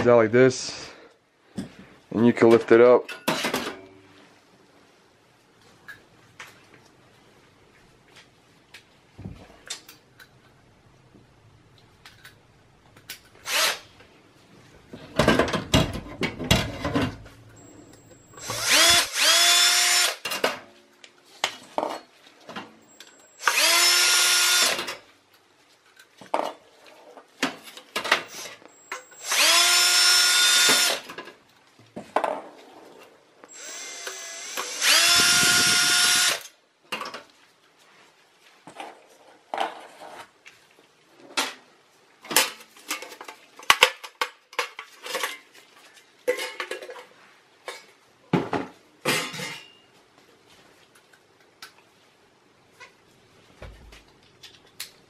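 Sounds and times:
cordless drill motor whine: 18.3s - 20.2s, 23.0s - 24.8s, 28.4s - 31.0s, 33.5s - 36.4s.

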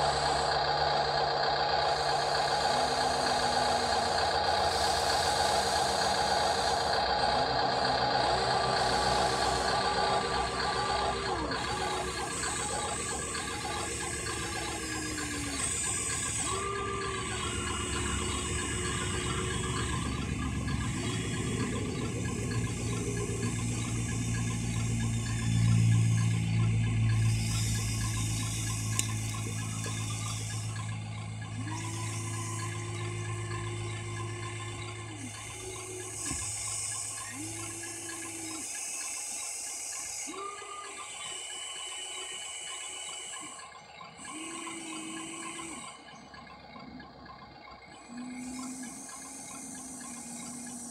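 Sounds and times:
electric motors whining: 0.0s - 50.9s.

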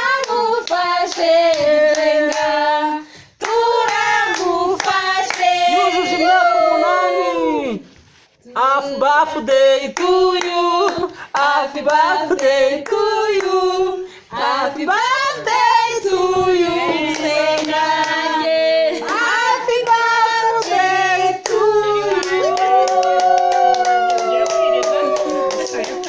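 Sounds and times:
people singing together: 0.0s - 23.0s
hands clapping: 3.4s - 5.5s, 17.0s - 18.3s, 21.4s - 26.0s.

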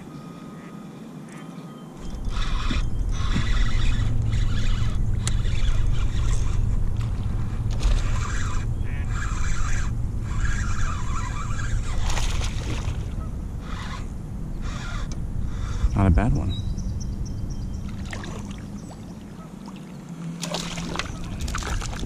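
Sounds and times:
low rumble: 2.0s - 19.1s.

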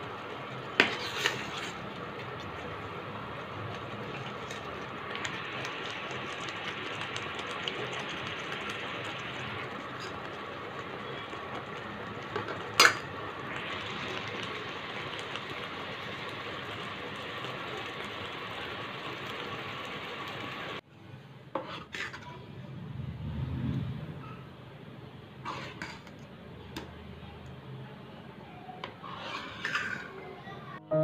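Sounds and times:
food simmering with small pops: 0.0s - 20.8s, 25.5s - 27.6s.

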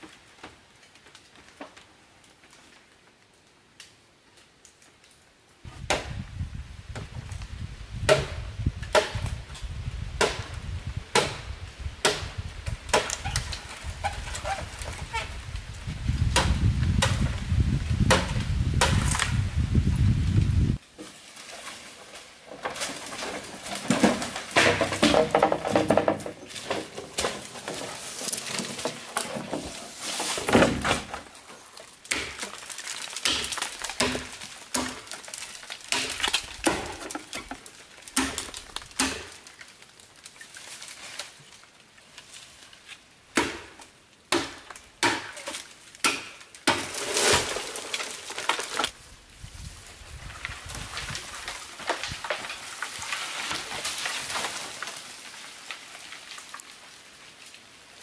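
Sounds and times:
leaves rustling and scraping: 0.0s - 58.0s
knife chopping bamboo: 8.1s - 9.2s, 10.2s - 10.5s, 11.1s - 11.4s, 12.0s - 13.2s, 38.2s - 39.4s, 43.3s - 45.4s, 46.0s - 47.0s.

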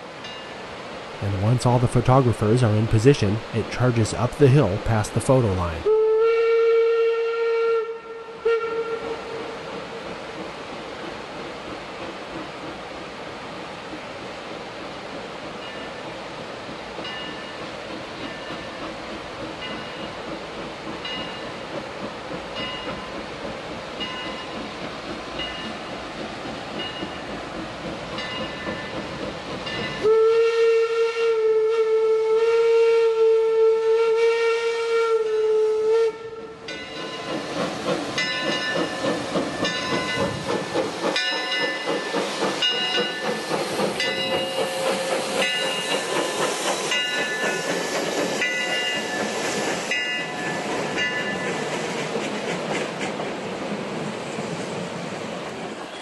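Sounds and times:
steam hiss: 0.0s - 56.0s
steam locomotive chuffing: 0.6s - 56.0s
steam whistle blast: 5.8s - 9.6s, 30.0s - 36.5s.

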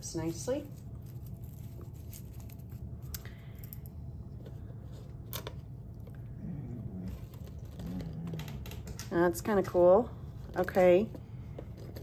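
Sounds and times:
low steady hum: 0.0s - 12.0s
paper tearing and rustling: 0.6s - 2.9s.

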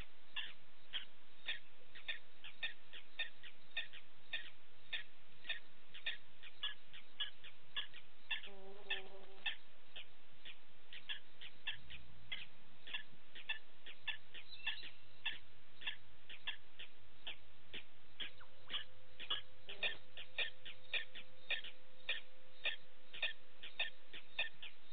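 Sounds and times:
animal chirping: 0.3s - 24.8s
pitched animal call: 7.8s - 9.6s, 18.2s - 23.9s.

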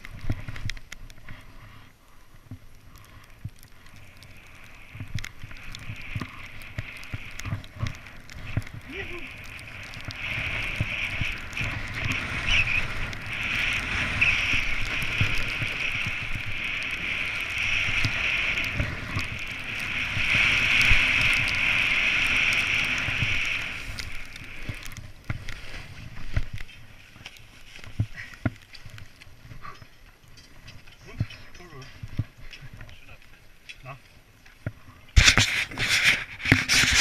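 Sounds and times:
wind rumbling on microphone: 0.0s - 37.0s
snowboard scraping over snow: 3.9s - 29.0s, 35.1s - 37.0s.

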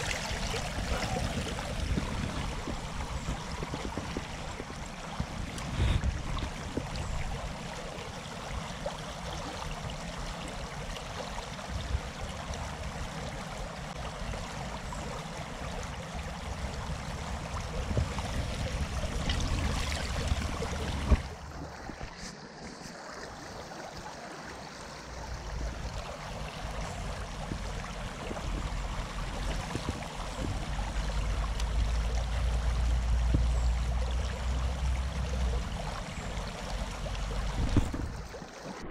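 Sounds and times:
river running over gravel: 0.0s - 38.9s.

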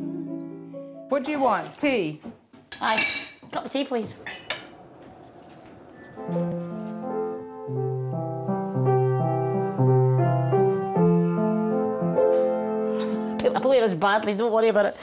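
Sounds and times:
piano slow held chords: 0.0s - 1.4s, 5.8s - 13.6s.

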